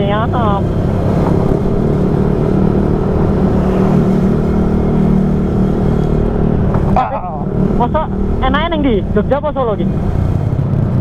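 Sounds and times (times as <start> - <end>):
scooter engine humming: 0.0 - 11.0
wind and road noise: 0.0 - 11.0.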